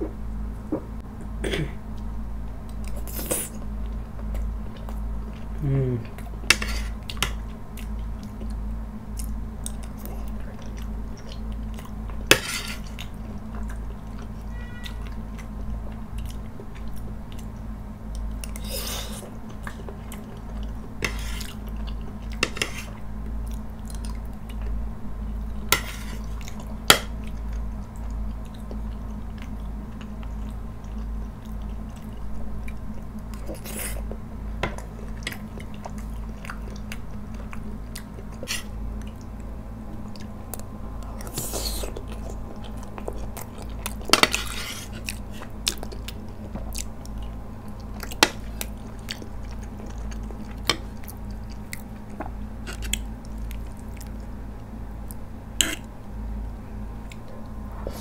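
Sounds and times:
steady low hum: 0:00.0 - 0:58.0
soft chewing: 0:01.9 - 0:58.0
fork scraping on plate: 0:25.8 - 0:26.3.

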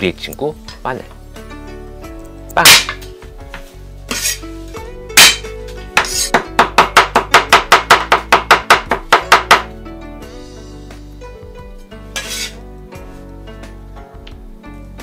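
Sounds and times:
background music: 0:00.0 - 0:15.0
cleaver chopping on wooden board: 0:02.6 - 0:03.0, 0:05.2 - 0:05.4, 0:06.0 - 0:09.7.

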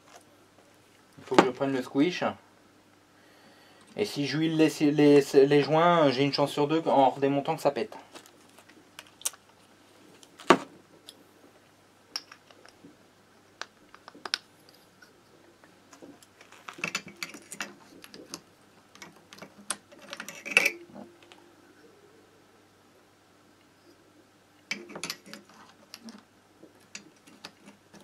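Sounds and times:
metal parts and tools clinking: 0:16.3 - 0:21.4, 0:24.7 - 0:26.2.

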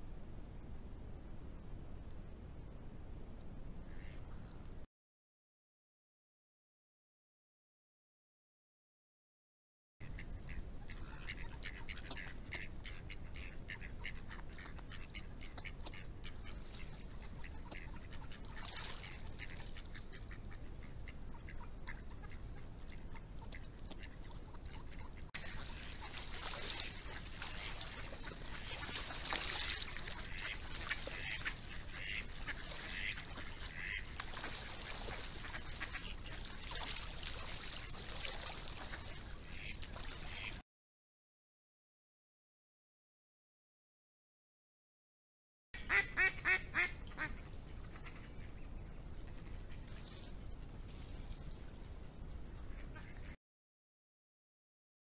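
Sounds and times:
ducks quacking: 0:03.9 - 0:04.3, 0:10.0 - 0:40.6, 0:45.8 - 0:48.6, 0:52.7 - 0:53.4.

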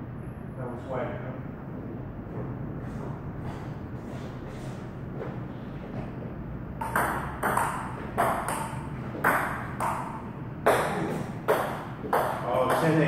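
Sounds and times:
table tennis ball clicking: 0:06.8 - 0:10.9.

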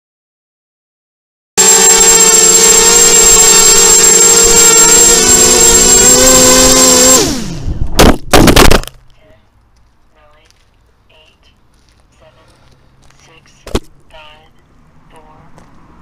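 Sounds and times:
drone motors whining: 0:01.6 - 0:08.0
drone hitting the ground: 0:01.6 - 0:09.0.

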